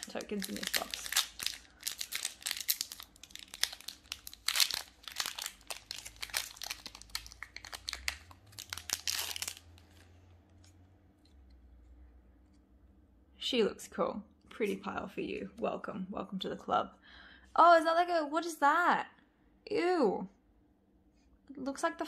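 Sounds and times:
foil wrapper crinkling and tearing: 0.0 - 10.0.

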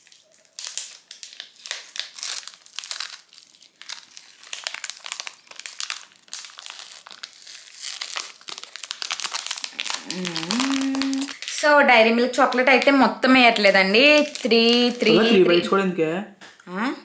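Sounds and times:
wrapper crinkling as torn open: 0.0 - 11.7, 14.0 - 15.2.

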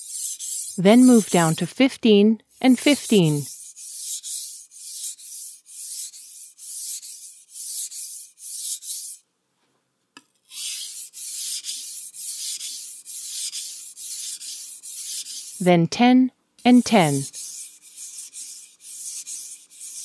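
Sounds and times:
knife scraping on sharpening stone: 10.4 - 15.6.

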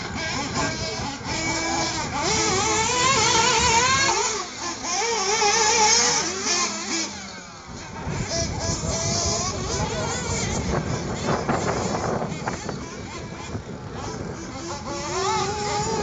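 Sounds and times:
small model engines buzzing: 0.0 - 16.0.

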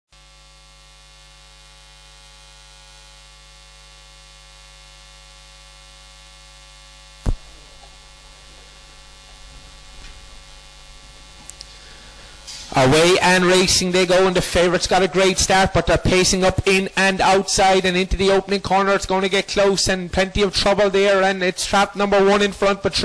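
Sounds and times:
electrical mains hum: 0.2 - 23.0
sharp click: 7.2 - 8.0.

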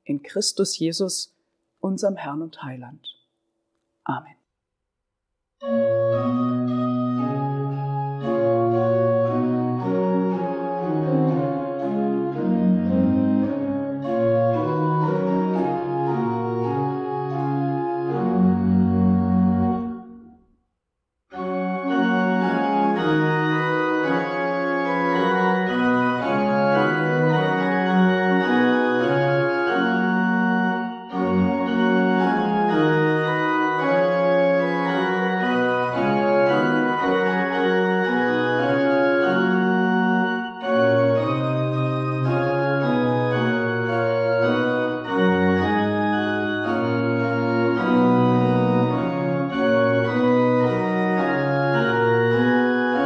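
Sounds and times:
organ playing held chords: 5.6 - 20.4, 21.3 - 53.0.

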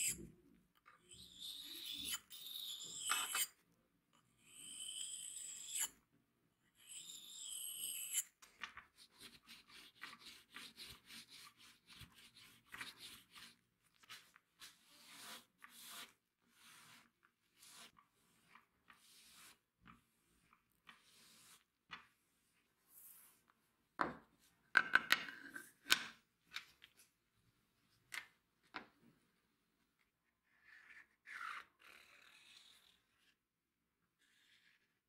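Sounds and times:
razor scraping on whetstone: 1.1 - 3.5, 4.6 - 5.9, 6.8 - 8.4, 9.2 - 18.0.

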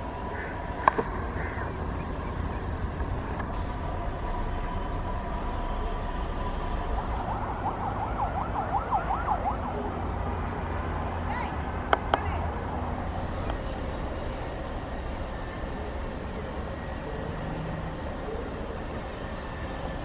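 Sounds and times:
low rumble: 0.0 - 16.5
electronic siren warble: 3.6 - 10.2.

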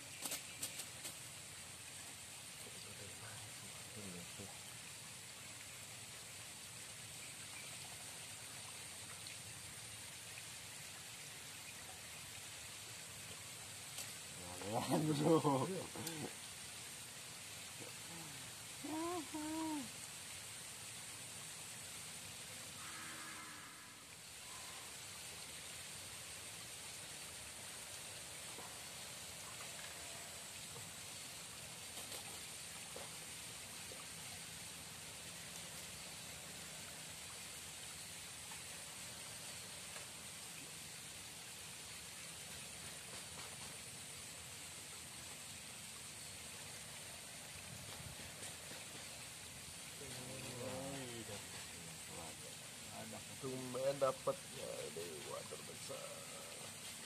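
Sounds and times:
flowing river water: 0.0 - 57.0
faint ticks: 13.3 - 14.2, 15.9 - 16.4.

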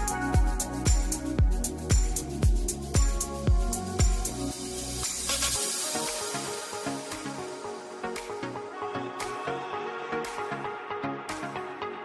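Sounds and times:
steady kick drum beat: 0.0 - 4.5.

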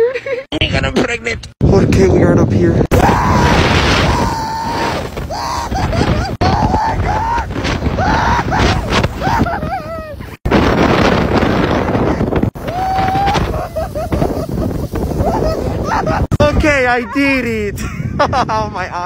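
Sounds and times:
wind across microphone: 0.6 - 19.0
person screaming: 2.9 - 10.2, 12.6 - 14.3.

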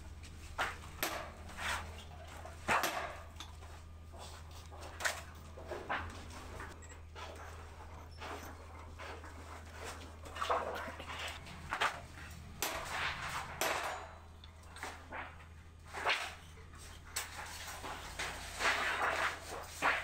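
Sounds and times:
steady low hum: 0.0 - 20.0
hammer striking sheet metal: 1.0 - 1.8, 12.6 - 14.3.

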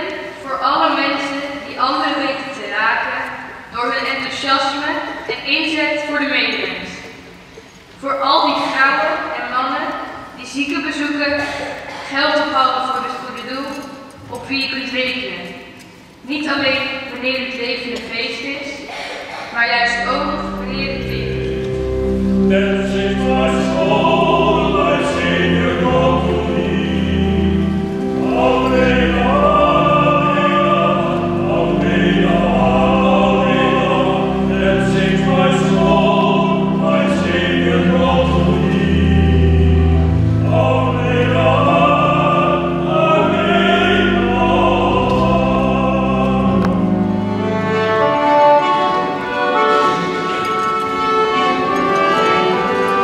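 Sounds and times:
sustained instrumental accompaniment: 19.8 - 53.0
two men singing together: 40.4 - 46.7.

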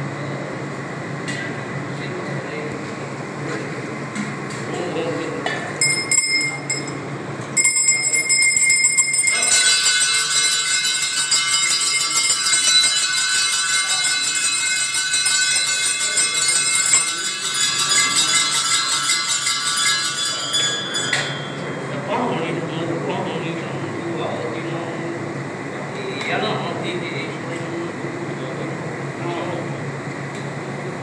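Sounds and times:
temple bells ringing: 5.8 - 7.0, 7.6 - 22.6.

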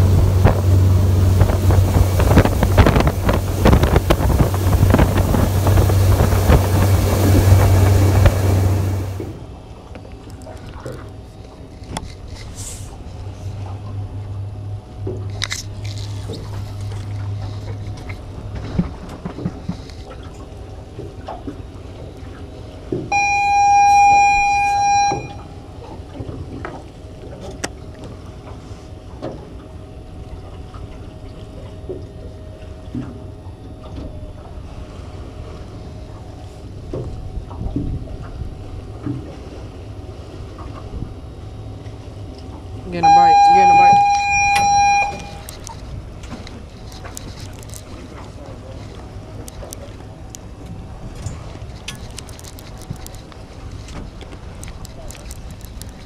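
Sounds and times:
low hum: 0.0 - 56.0
high-pitched horn blast: 23.1 - 25.4, 42.9 - 45.5.

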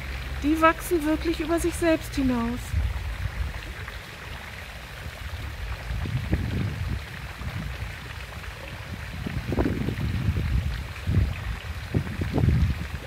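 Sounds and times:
fountain splashing: 0.0 - 13.0
wind rumble on microphone: 0.0 - 13.0.

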